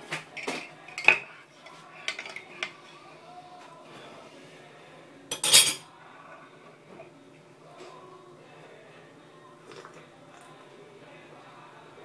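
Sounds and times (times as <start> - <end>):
spoon clinking in ceramic mug: 5.3 - 5.8.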